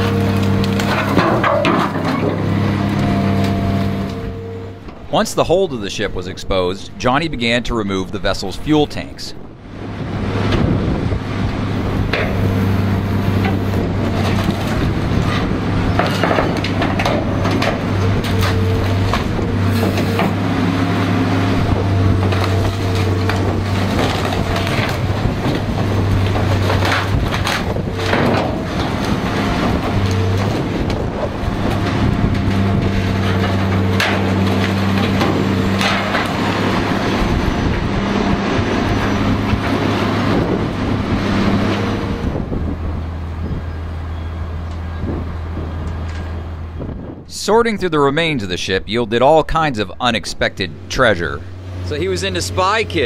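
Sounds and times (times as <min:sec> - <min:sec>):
grapple crushing wood and steel: 0:00.0 - 0:04.2
metal crunches and clanks: 0:00.0 - 0:10.0, 0:12.0 - 0:20.5, 0:21.8 - 0:40.7
excavator diesel engine running: 0:00.0 - 0:53.0.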